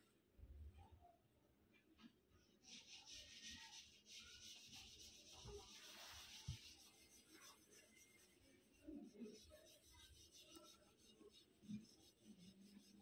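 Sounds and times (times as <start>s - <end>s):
marking tool scratching fabric: 2.6s - 13.0s.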